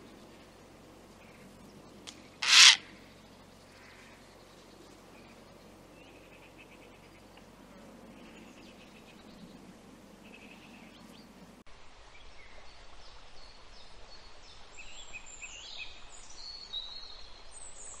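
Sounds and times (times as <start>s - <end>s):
songbirds singing: 0.0s - 11.6s.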